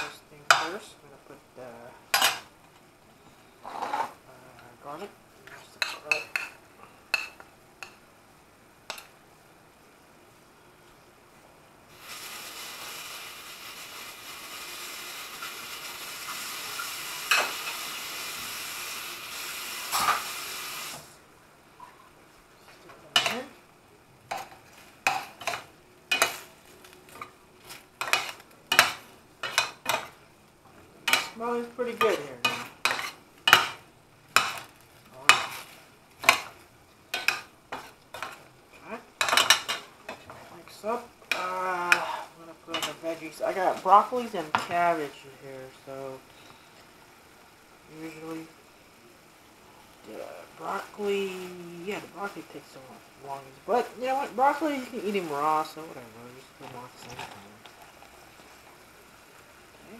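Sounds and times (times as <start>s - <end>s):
meat sizzling in oil: 11.8s - 21.3s, 23.0s - 59.9s.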